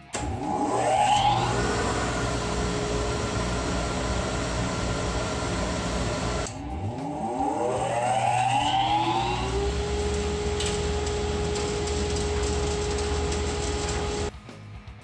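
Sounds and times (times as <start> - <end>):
dust collector whining: 0.1 - 14.3.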